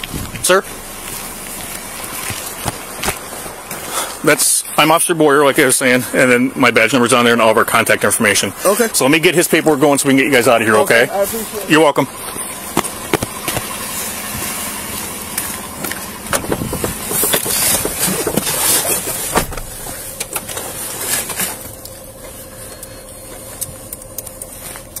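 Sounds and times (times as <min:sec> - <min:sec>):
steady hum inside car: 0:00.0 - 0:25.0
car door and seat knocks: 0:19.3 - 0:19.9.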